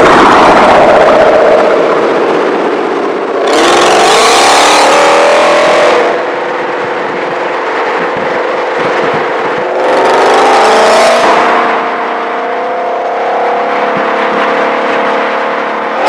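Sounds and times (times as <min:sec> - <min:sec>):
car engine revving: 0:00.0 - 0:16.0.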